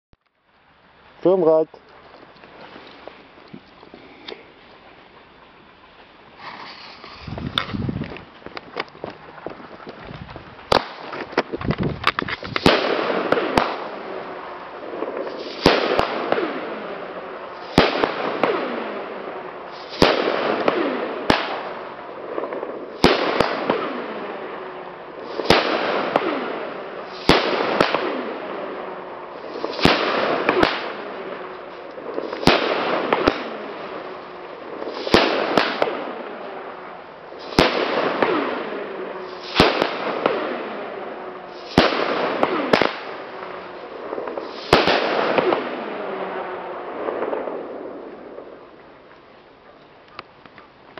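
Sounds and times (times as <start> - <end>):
hiss after firework shots: 0.5 - 10.0, 10.6 - 49.4
firework cake bangs: 29.4 - 36.4, 44.0 - 46.0.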